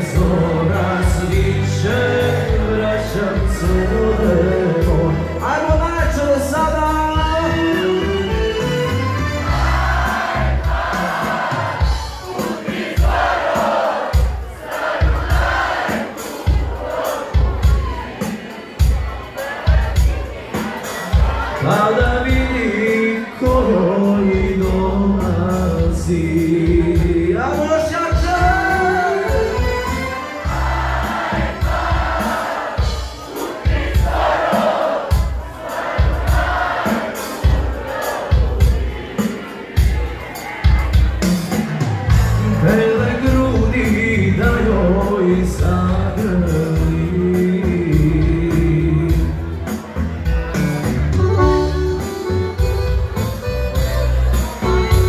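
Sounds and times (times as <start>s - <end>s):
steady bass beat: 0.0s - 7.6s, 8.3s - 13.4s, 24.3s - 34.5s, 39.8s - 55.0s
person singing: 0.0s - 10.2s, 15.1s - 32.4s, 36.4s - 50.1s
live band music: 0.0s - 55.0s.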